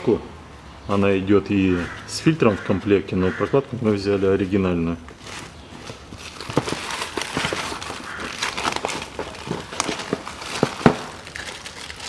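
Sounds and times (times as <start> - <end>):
plastic bag crinkling: 5.2 - 12.0.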